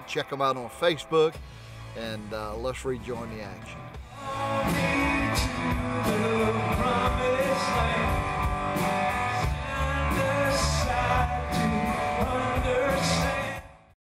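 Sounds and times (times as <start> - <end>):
rock band playing: 0.0 - 13.9
man singing: 4.1 - 14.0.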